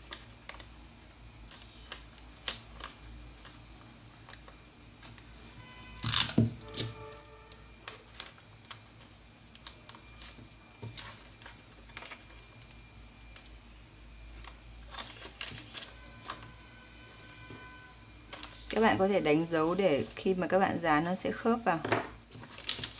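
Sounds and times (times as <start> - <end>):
paper rustling and crinkling: 0.0 - 0.7, 1.5 - 5.6, 7.8 - 13.5, 14.3 - 18.9, 22.2 - 22.9.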